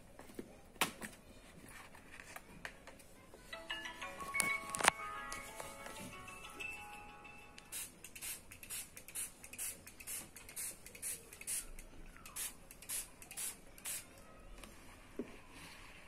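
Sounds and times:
spray bottle spritzes: 7.7s - 14.0s.

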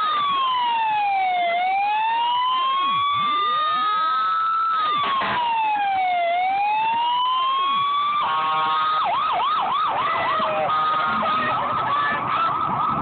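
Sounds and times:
fire engine siren: 0.0s - 13.0s
horn blast: 8.2s - 9.0s, 10.1s - 12.6s.

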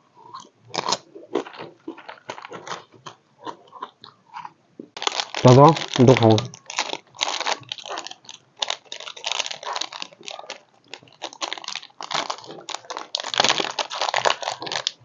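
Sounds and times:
plastic wrapper crinkling: 5.0s - 15.0s.

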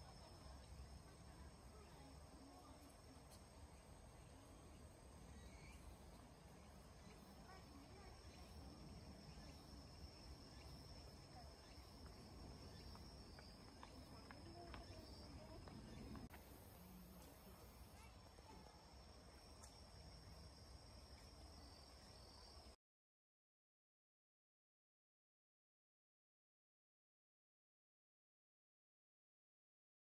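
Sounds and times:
insects trilling: 0.0s - 22.7s.

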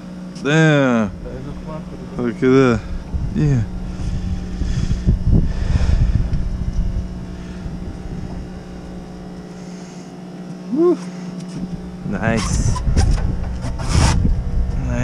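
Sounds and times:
boat engine humming: 0.0s - 15.0s
wind rumble on microphone: 1.0s - 9.5s, 11.5s - 15.0s.

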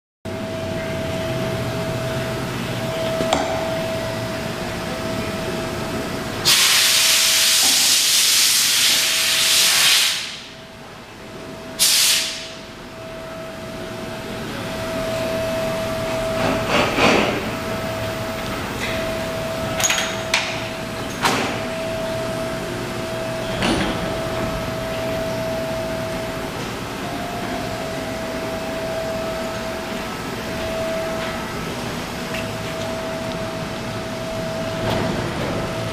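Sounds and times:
steady hum: 0.3s - 35.9s
loud hiss: 6.4s - 10.4s, 11.8s - 12.5s
thin high tone: 12.6s - 35.9s.

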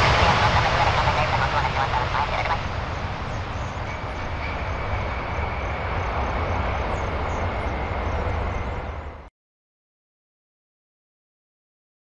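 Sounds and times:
faint high whine: 0.0s - 9.3s
jet engines rumbling: 0.0s - 9.3s.

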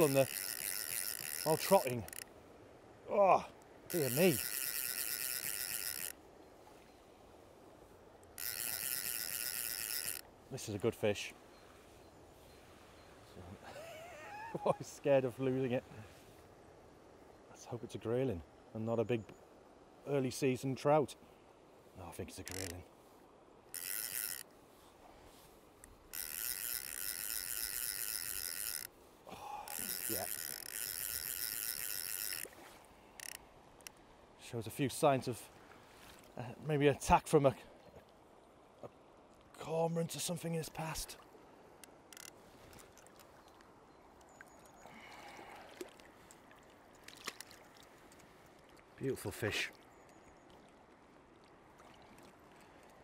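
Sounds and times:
fishing reel ratchet clicking: 0.0s - 2.3s, 3.9s - 6.2s, 8.4s - 10.3s, 22.4s - 22.8s, 23.7s - 24.5s, 25.8s - 28.9s, 29.7s - 32.5s, 33.2s - 34.0s, 41.8s - 42.4s
small splashes in water: 44.3s - 49.0s, 49.6s - 53.0s.

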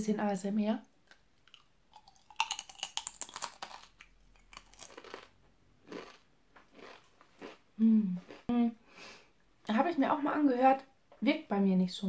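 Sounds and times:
crunchy chip being chewed: 1.1s - 7.6s.

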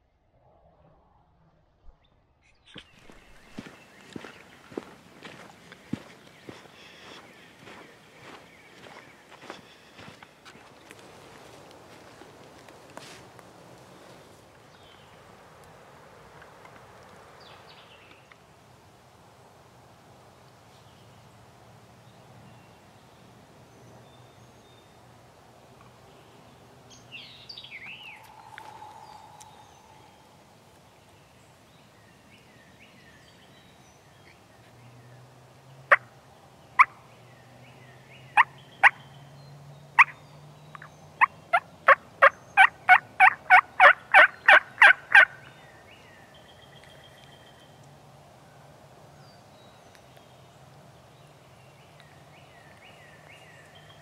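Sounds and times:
faint birdsong: 0.0s - 19.0s, 20.2s - 54.0s
warbling bird call: 27.8s - 30.7s
turkey clucking: 41.2s - 45.4s.

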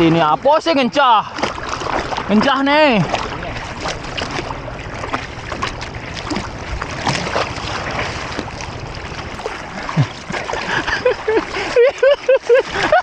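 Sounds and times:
sea water splashing: 0.8s - 13.0s
wind on microphone: 3.0s - 11.8s.

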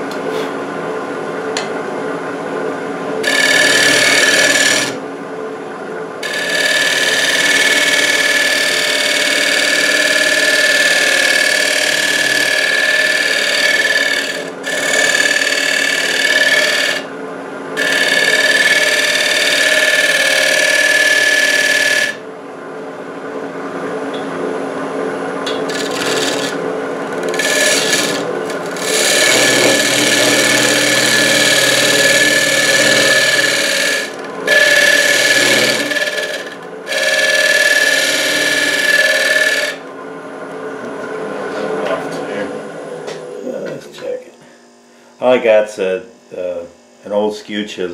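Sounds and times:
turning tool scraping wood: 3.2s - 5.0s, 6.2s - 17.1s, 17.8s - 22.2s, 25.7s - 39.8s
wood lathe humming: 3.2s - 5.0s, 6.2s - 17.1s, 17.8s - 22.2s, 25.4s - 39.9s.

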